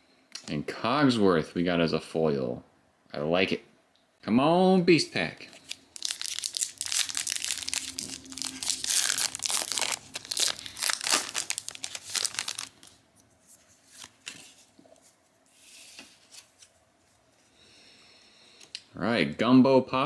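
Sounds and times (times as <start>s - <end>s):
wrapper tearing and crinkling: 5.5s - 13.0s.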